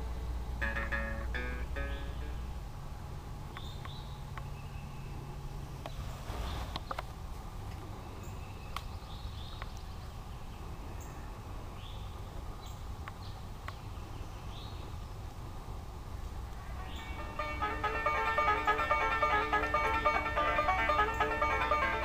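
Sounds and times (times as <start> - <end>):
high bird chirps: 0.6 - 2.5.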